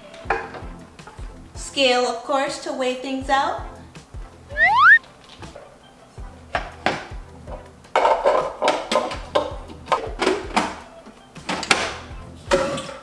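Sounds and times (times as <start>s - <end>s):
background music with steady beat: 0.0s - 13.0s.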